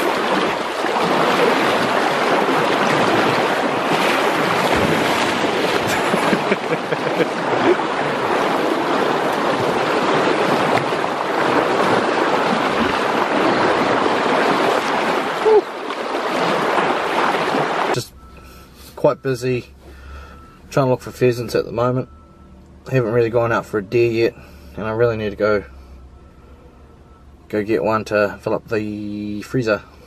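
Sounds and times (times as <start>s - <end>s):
creek rushing: 0.0s - 18.1s.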